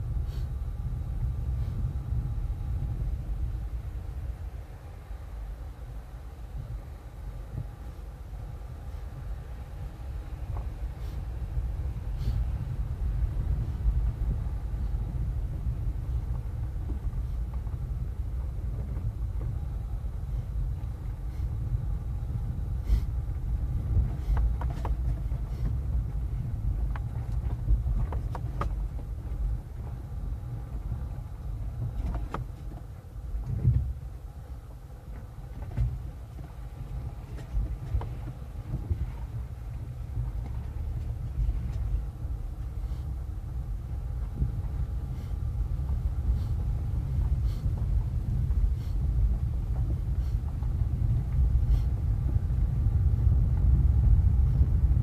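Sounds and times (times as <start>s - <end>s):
car engine and tyres rumbling: 0.0s - 55.0s
knocks and rattles over bumps: 23.3s - 42.8s, 43.5s - 55.0s.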